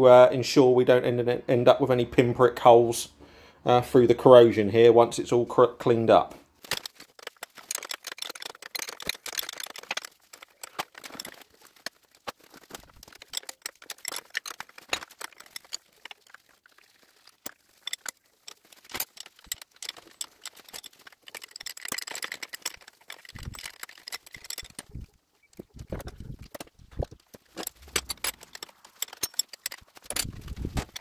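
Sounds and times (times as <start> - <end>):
metal engine parts clinking: 6.6 - 31.0.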